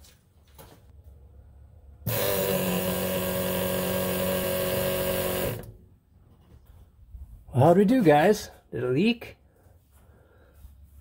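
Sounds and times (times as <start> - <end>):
electric fuel pump humming: 2.0 - 5.9.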